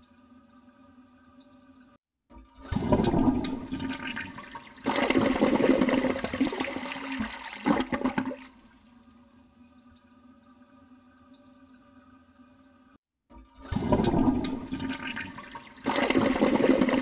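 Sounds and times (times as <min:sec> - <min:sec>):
water splashing in a basin: 0:02.3 - 0:08.9, 0:13.3 - 0:17.0.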